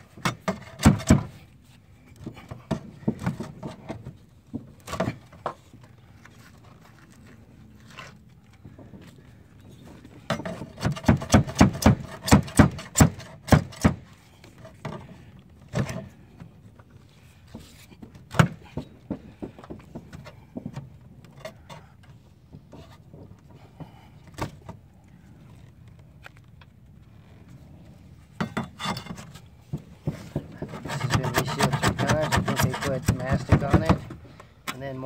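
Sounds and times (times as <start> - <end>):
pry bar scraping sealant off metal: 30.6 - 33.6.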